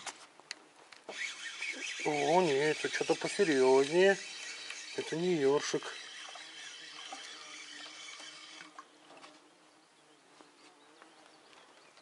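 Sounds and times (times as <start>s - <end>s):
fishing reel whirring: 1.1s - 8.9s.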